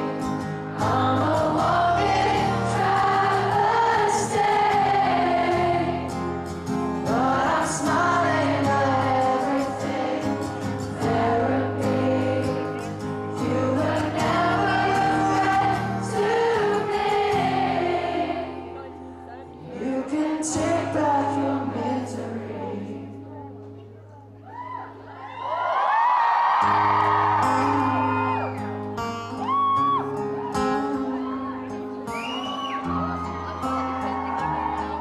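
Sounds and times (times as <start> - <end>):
person singing: 0.0 - 5.7, 7.1 - 18.0, 19.6 - 23.4
crowd singing along: 0.0 - 23.6
strummed acoustic guitar: 0.0 - 24.4, 26.6 - 35.0.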